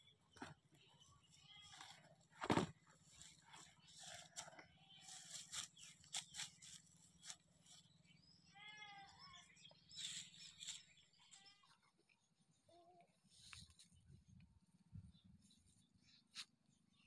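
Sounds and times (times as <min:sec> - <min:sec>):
rustles: 0:01.6 - 0:07.9.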